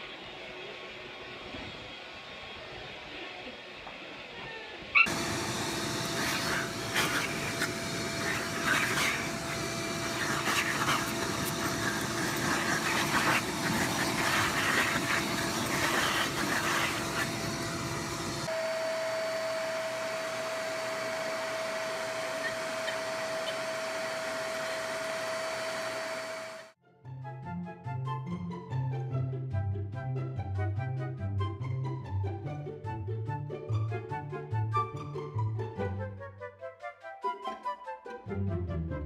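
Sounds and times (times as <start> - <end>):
vacuum cleaner running: 0.0 - 26.8
sharp irregular noises: 5.8 - 18.5.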